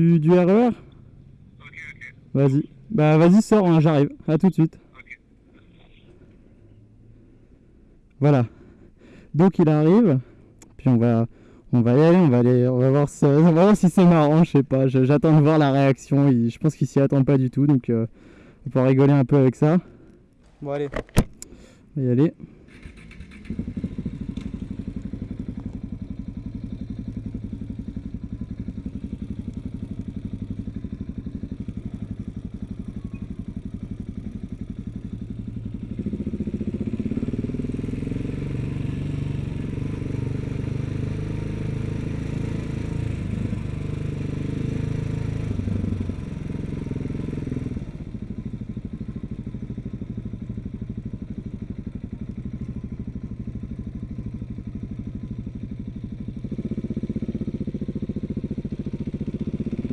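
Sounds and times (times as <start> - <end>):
motorcycle engine running: 0.0 - 4.6, 22.4 - 59.9.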